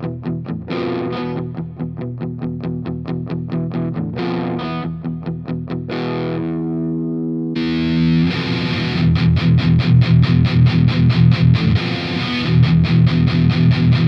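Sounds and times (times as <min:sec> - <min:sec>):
distorted electric guitar chugs: 0:00.0 - 0:14.0
distorted guitar chord ringing: 0:05.9 - 0:14.0.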